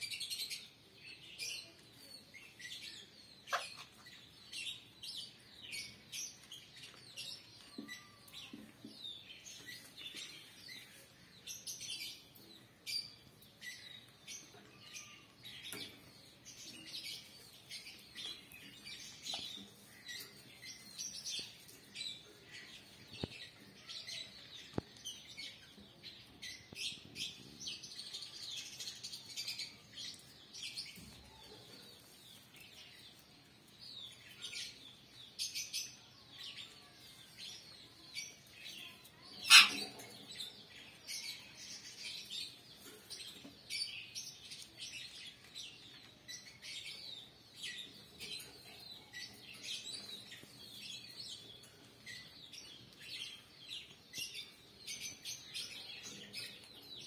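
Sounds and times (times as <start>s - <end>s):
parakeets chattering: 39.4s - 40.2s
loud parakeet call: 39.5s - 39.9s.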